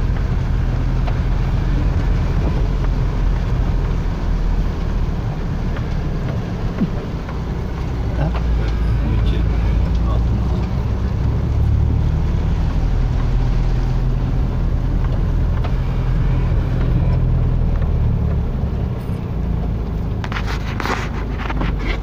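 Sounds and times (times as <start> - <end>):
car engine hum: 0.0 - 22.0
tyres on wet road: 0.0 - 22.0
crackling clicks: 5.4 - 11.6.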